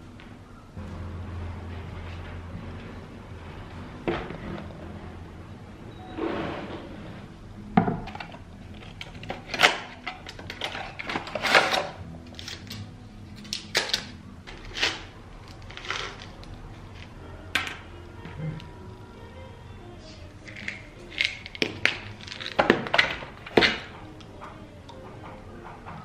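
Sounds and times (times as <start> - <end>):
small objects clicking and clattering: 8.1 - 17.8, 20.4 - 23.9.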